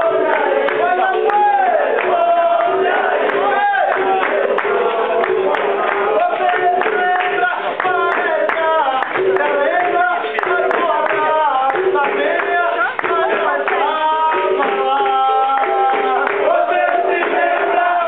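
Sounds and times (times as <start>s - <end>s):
group singing: 0.0s - 18.0s
hand-clapping in time: 0.0s - 18.0s.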